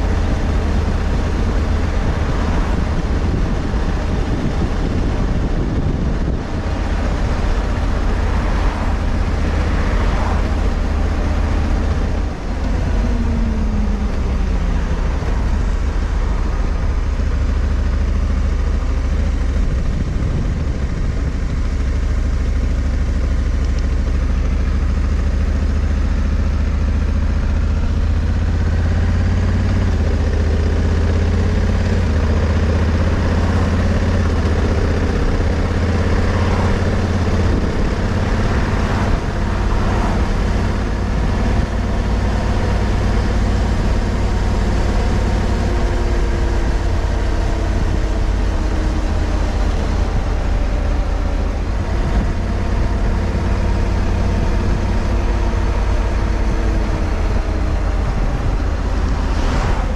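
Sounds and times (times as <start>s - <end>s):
motorcycle engine running: 0.0s - 59.9s
wind and road noise: 0.0s - 59.9s.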